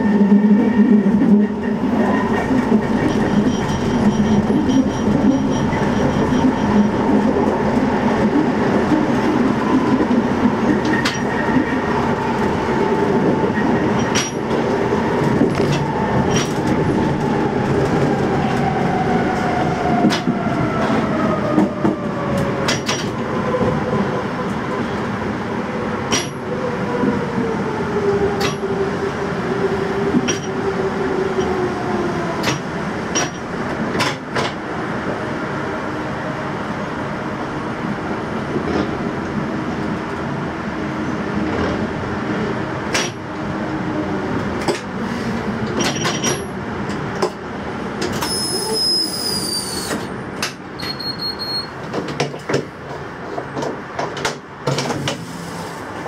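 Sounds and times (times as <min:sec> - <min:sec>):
brake squeal: 0:02.8 - 0:07.0, 0:48.2 - 0:50.1, 0:50.8 - 0:51.8
high beep: 0:50.8 - 0:51.7.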